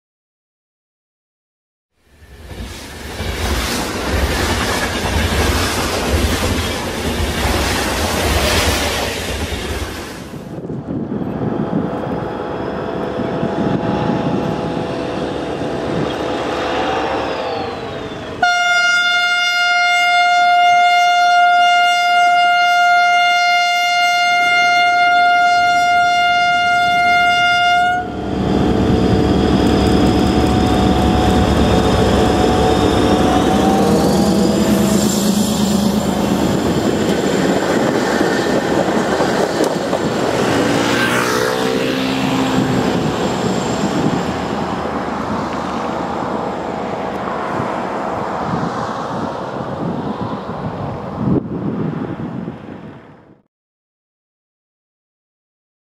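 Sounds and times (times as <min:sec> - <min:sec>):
coaches clattering over rails: 0:02.5 - 0:10.0, 0:28.3 - 0:41.6
train horn: 0:12.1 - 0:17.7, 0:18.4 - 0:28.3
locomotive engine running: 0:27.9 - 0:51.2.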